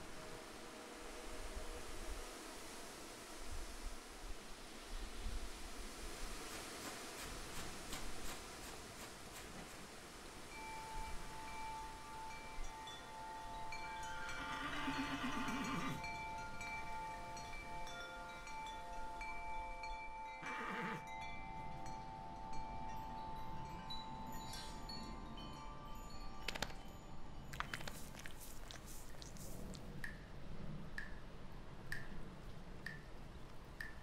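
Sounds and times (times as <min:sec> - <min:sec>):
wind chimes ringing: 0:10.5 - 0:27.6.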